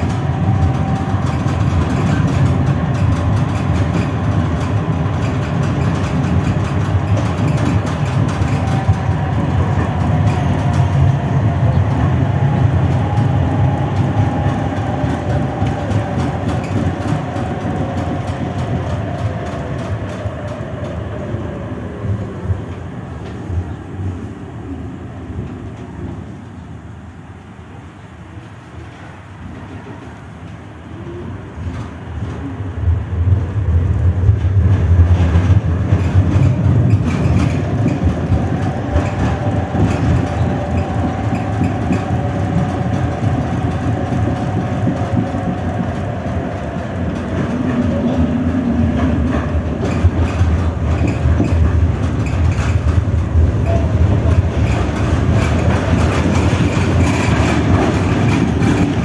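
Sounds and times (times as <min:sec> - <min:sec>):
wheels clattering on rails: 0:00.0 - 0:21.0, 0:33.2 - 0:59.0
tram motor whine: 0:00.0 - 0:23.8, 0:32.9 - 0:59.0.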